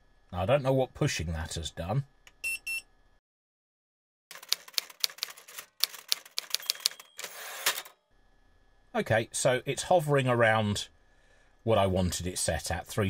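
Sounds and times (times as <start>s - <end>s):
typewriter key clacks: 4.3s - 7.3s.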